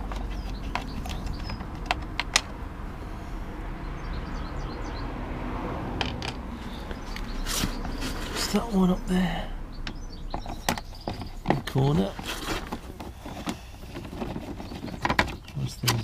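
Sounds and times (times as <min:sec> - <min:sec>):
hand tools clicking and clattering: 0:09.9 - 0:16.0.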